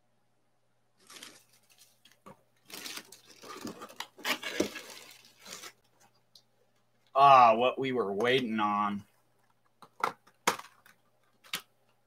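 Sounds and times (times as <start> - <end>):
packaging crinkling and rustling: 1.0 - 6.1.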